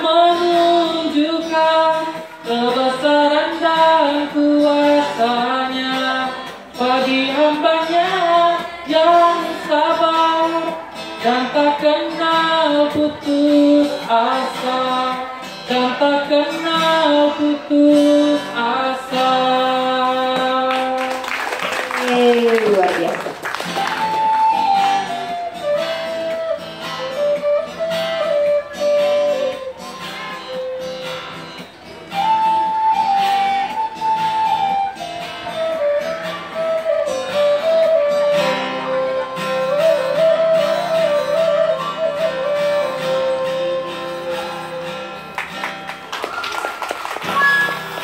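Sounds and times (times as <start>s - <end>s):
strummed acoustic guitar: 0.0s - 21.3s, 23.3s - 46.1s
flute melody: 23.4s - 45.4s, 46.2s - 48.0s.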